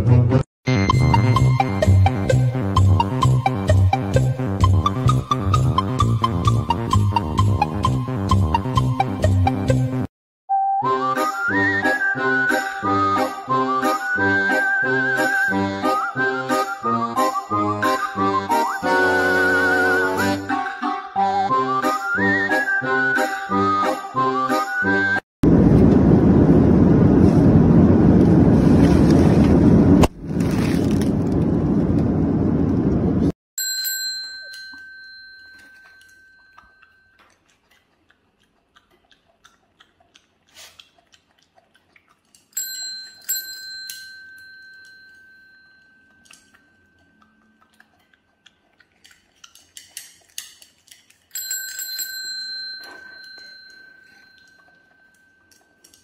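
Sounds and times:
small metal bell dinging: 33.6 - 37.2, 42.6 - 47.2, 51.3 - 56.0.

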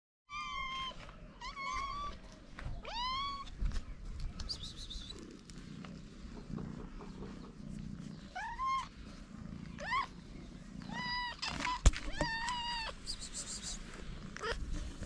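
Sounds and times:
cats meowing: 0.3 - 3.8, 7.3 - 15.0.

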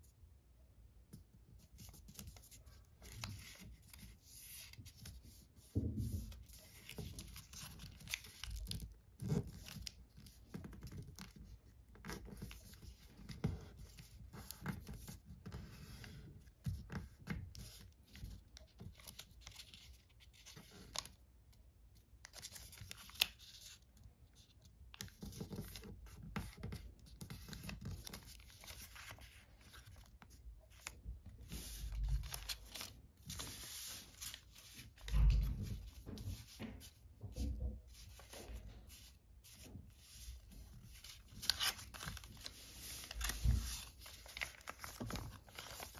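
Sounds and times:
crisp paper crackles: 6.4 - 12.9, 22.2 - 36.6, 38.0 - 45.9
paper rustling and scraping: 24.4 - 45.9.

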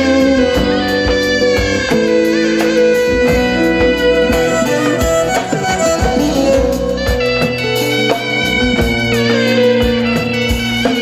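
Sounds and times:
bowed fiddle: 0.0 - 7.5
end-blown flute melody: 0.0 - 10.4
steady drum beat: 0.0 - 11.0.

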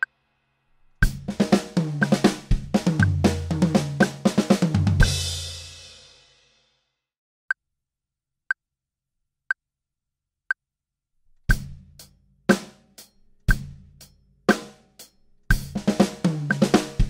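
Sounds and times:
drum fill on snare and toms: 1.0 - 6.4, 11.5 - 17.0
drum kit groove: 1.0 - 6.5, 11.5 - 17.0
metronome clicking: 1.8 - 3.2, 16.3 - 17.0.

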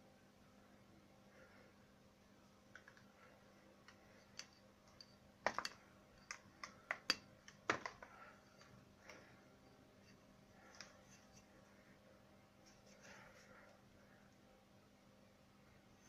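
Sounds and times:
fingers tapping plaster: 4.4 - 8.7.

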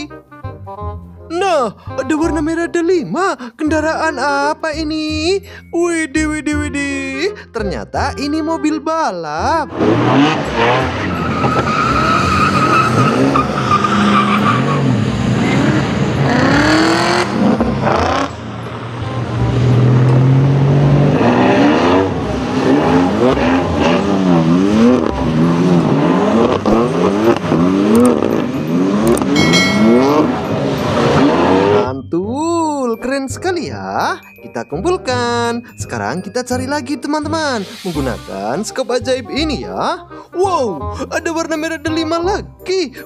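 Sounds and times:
car engine revving hard: 9.7 - 31.8.

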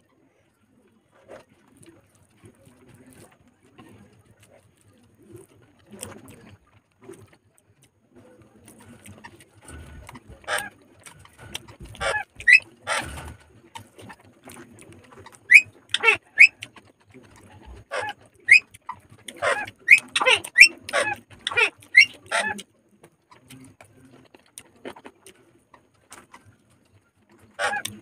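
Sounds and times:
chewing and lip smacking: 1.6 - 28.0
short high squeaks: 12.0 - 13.0, 15.5 - 16.6.

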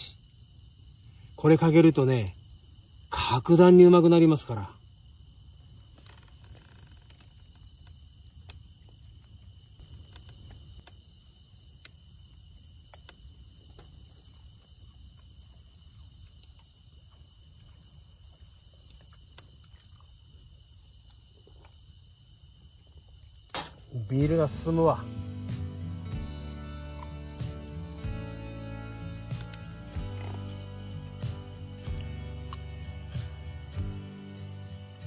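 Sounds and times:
crickets chirring: 0.0 - 35.0
sharp clicks: 29.3 - 29.7.

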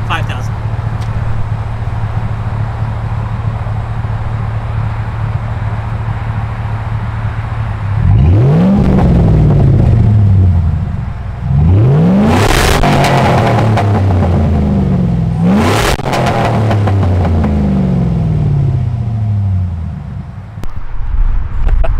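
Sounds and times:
truck engine idling: 0.0 - 8.2, 9.2 - 11.5
engine revving: 7.4 - 19.9.

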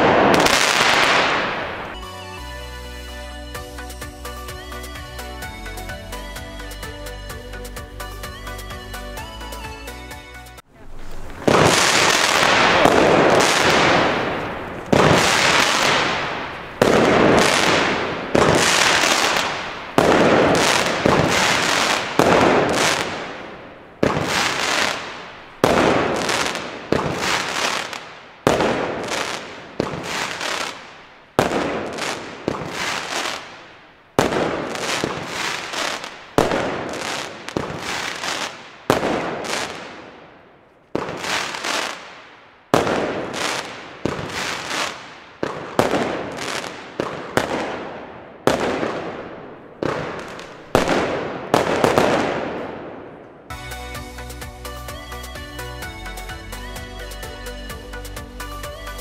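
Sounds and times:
fireworks battery firing: 0.0 - 2.1, 10.7 - 53.6
crackling hiss: 10.6 - 53.0.

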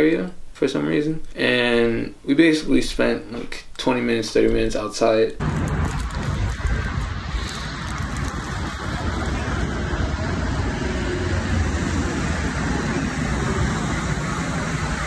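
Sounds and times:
cars passing: 5.4 - 15.0.

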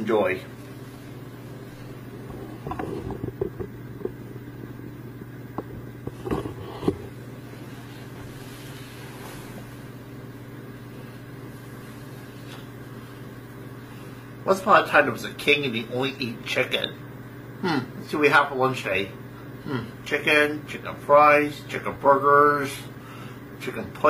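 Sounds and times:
steady low hum: 0.0 - 24.0
knocks and clatters: 2.2 - 4.2.

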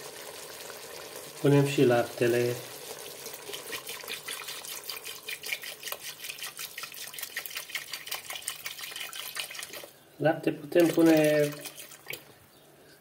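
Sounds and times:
food crackling: 0.0 - 10.0, 10.7 - 12.4
milk pouring and splashing: 2.4 - 10.0, 10.7 - 12.3.

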